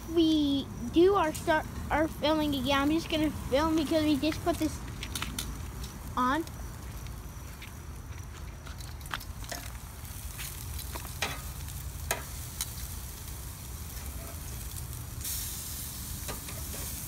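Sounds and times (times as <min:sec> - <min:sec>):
meat sizzling on a grill: 0:00.0 - 0:17.0
metal tongs clicking on grate: 0:11.1 - 0:12.8.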